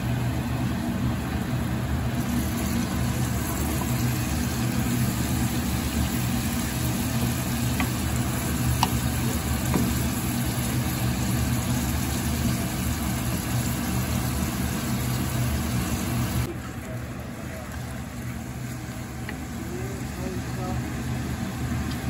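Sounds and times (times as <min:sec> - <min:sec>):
low mechanical hum: 0:00.0 - 0:22.0
vegetables sizzling in oil: 0:02.1 - 0:16.5.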